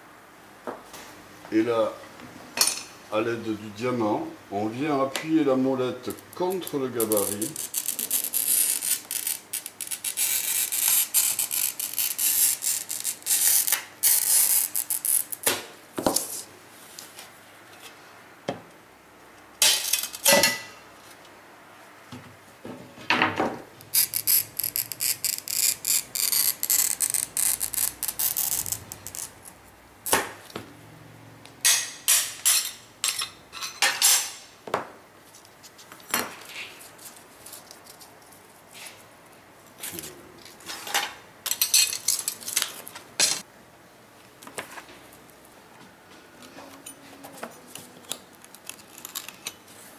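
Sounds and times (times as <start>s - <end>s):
glass cutter scoring glass: 6.6s - 15.5s, 23.9s - 29.4s.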